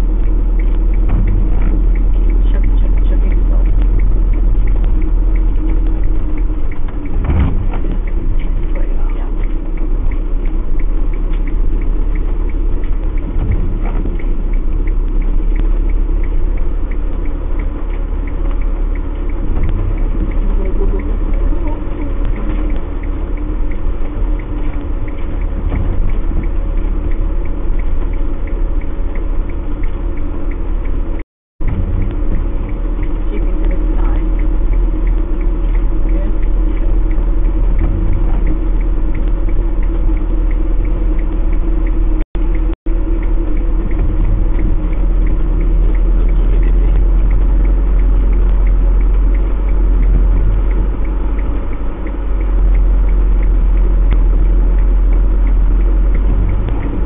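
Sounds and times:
engine and drivetrain rumble: 0:00.0 - 0:57.0
vehicle knocks: 0:07.1 - 0:08.0.

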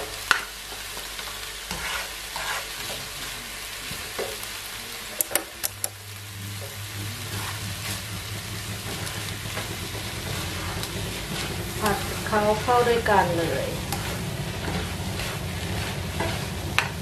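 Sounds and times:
vegetables sizzling in frying pan: 0:00.0 - 0:17.0
utensils clicking against pan: 0:05.2 - 0:06.0, 0:13.8 - 0:17.0.

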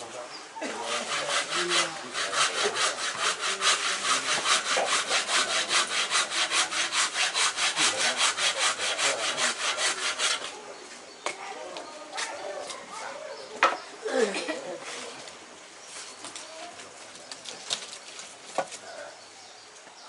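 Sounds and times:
hand saw cutting wood: 0:00.6 - 0:10.6.

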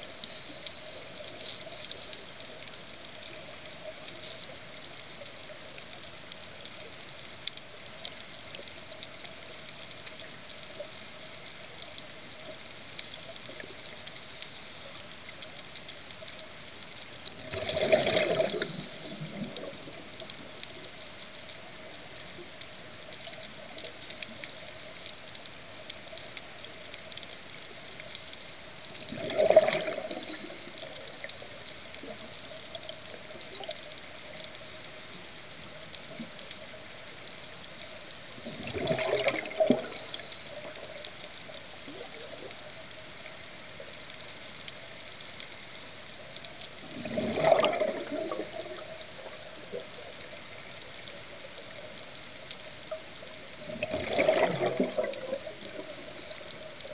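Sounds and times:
underwater exhaled bubbles: 0:00.0 - 0:56.9.

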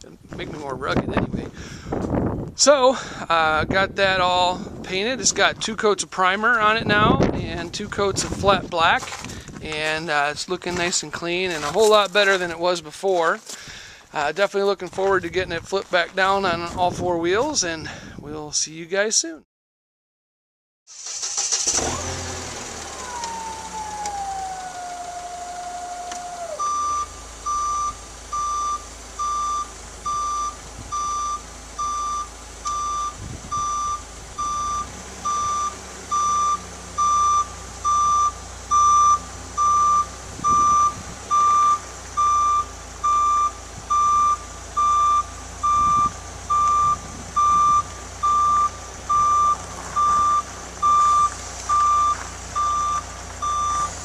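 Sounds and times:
forklift engine running: 0:21.0 - 0:54.0
engine whine sliding down: 0:21.4 - 0:54.0
forklift backup alarm beeping: 0:25.2 - 0:54.0.

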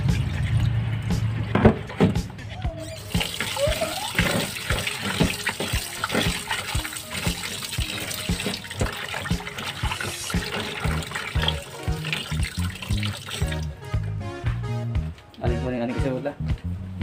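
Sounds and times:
music with low bass: 0:00.0 - 0:03.0, 0:10.2 - 0:17.0
tap water running into pot: 0:03.0 - 0:13.8
hands splashing meat: 0:03.1 - 0:13.7.

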